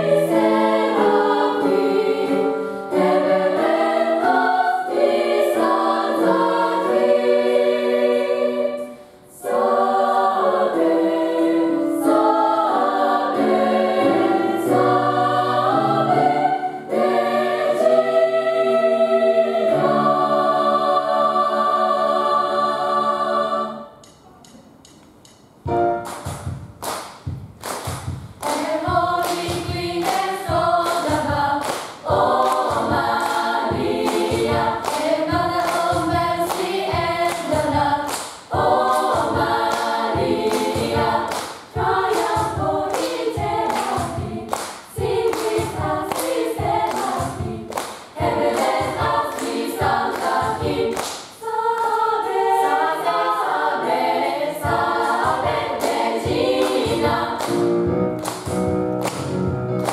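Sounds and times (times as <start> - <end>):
choir singing in harmony: 0.0 - 24.2, 28.4 - 58.0
hand claps: 26.0 - 52.0, 55.0 - 59.9.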